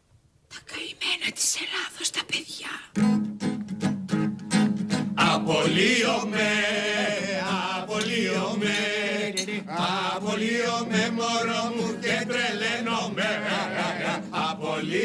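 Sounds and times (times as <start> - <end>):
strummed acoustic guitar: 3.0 - 14.4
men singing in unison: 5.2 - 15.0.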